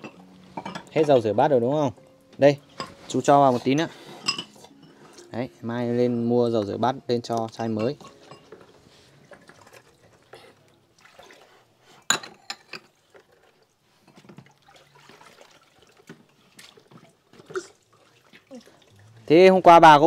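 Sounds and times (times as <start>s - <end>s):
dishes clinking: 0.0s - 1.4s, 2.7s - 5.4s, 6.6s - 10.4s, 12.1s - 13.0s
water splashing and dripping: 9.2s - 11.7s, 13.0s - 19.5s.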